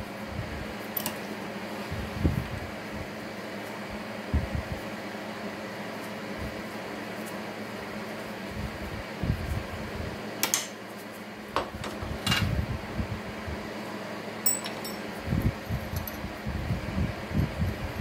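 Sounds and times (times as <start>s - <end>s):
steady low hum: 0.0s - 18.0s
metallic clinks of steel tooling: 14.4s - 15.1s.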